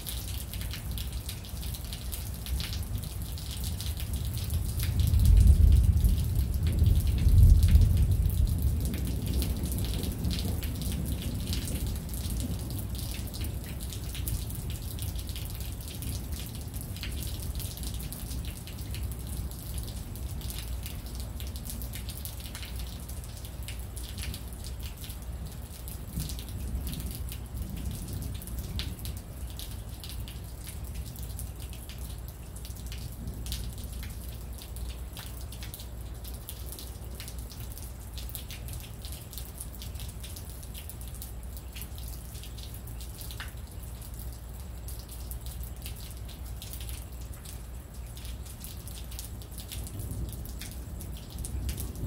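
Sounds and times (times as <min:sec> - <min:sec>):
rain falling and dripping: 0:00.0 - 0:52.0
deep thunder rumble: 0:04.6 - 0:13.6.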